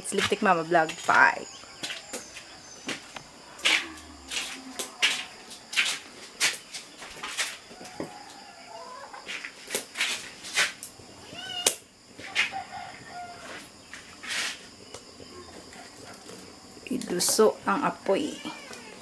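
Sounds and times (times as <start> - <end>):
cats meowing: 11.2 - 11.8, 18.2 - 19.0
firewood crackling and popping: 13.0 - 17.7.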